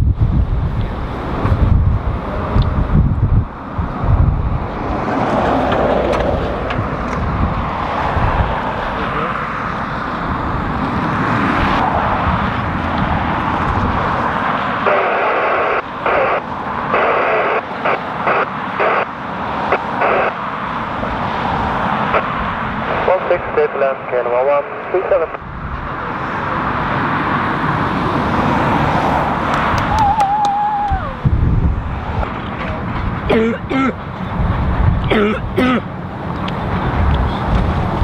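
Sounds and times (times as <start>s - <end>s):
wind buffeting microphone: 0.0s - 17.2s, 25.4s - 38.0s
jet engines running: 0.1s - 38.0s.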